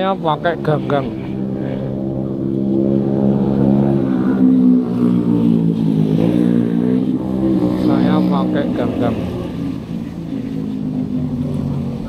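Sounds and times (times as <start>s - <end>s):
engine running: 0.0s - 12.0s.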